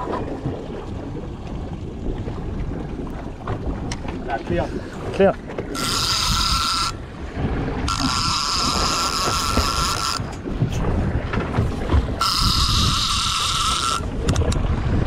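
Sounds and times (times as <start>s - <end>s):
wind buffeting microphone: 0.0s - 15.0s
fishing reel whirring: 5.7s - 7.0s, 7.9s - 10.3s, 12.2s - 14.1s.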